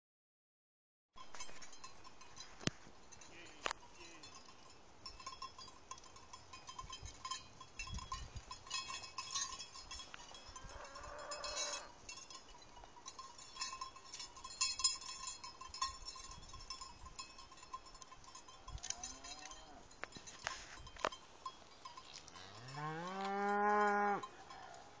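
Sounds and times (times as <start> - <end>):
cowbells clinking and jangling: 1.2 - 25.0
drawn-out call: 10.5 - 12.0, 21.7 - 25.0.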